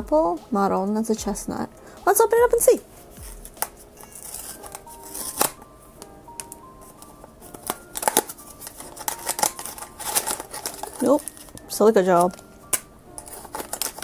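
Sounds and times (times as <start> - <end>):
soft background music: 0.0 - 14.0
cardboard tearing: 3.2 - 5.6, 7.5 - 11.6, 13.2 - 14.0
packing crinkling: 3.2 - 5.6, 6.3 - 14.0.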